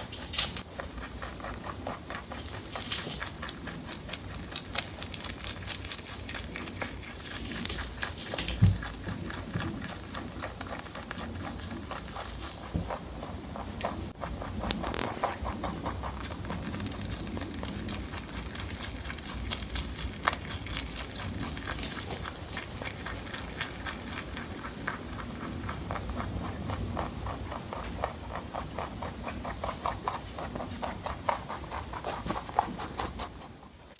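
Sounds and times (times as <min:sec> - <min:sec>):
rabbit chewing crunching leaf: 0:00.0 - 0:33.9.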